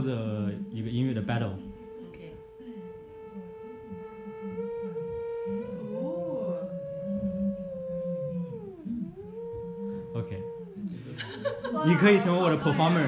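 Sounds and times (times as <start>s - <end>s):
lower wavering tone: 0.0s - 13.0s
theremin-style electronic tone: 0.0s - 13.0s.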